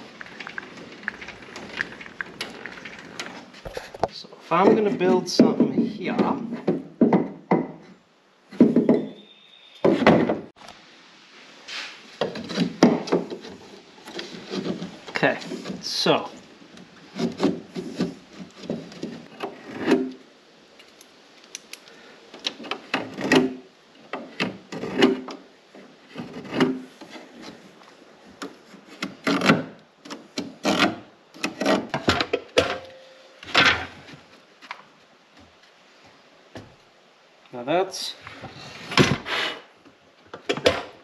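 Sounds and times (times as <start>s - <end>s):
wood rubbing on wood: 0.0s - 6.8s, 11.7s - 20.2s
wooden boards knocking: 4.6s - 7.8s, 9.8s - 10.5s, 12.2s - 13.4s.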